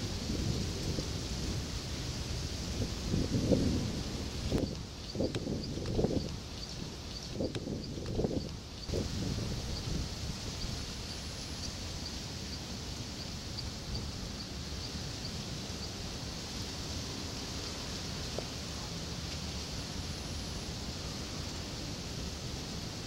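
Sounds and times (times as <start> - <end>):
high hiss: 0.0 - 23.0
low wind rumble: 0.0 - 23.0.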